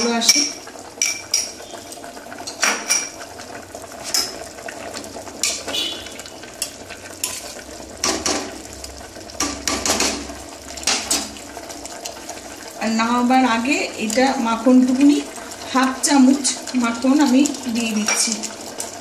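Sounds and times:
metal spoon scraping a pot: 5.4s - 8.4s.

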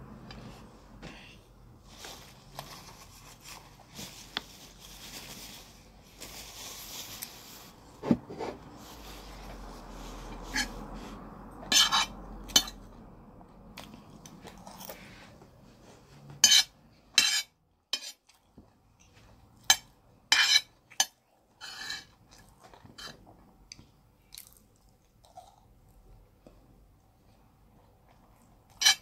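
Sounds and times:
metal spoon scraping a plate: 10.4s - 10.8s, 11.7s - 12.8s, 16.4s - 18.2s, 19.7s - 22.2s, 28.7s - 29.0s.

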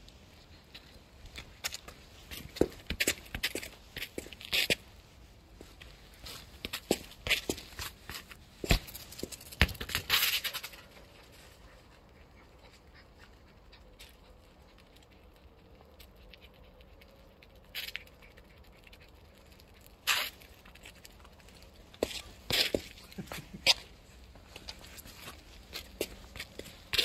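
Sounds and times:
football bouncing on concrete: 6.7s - 10.4s.

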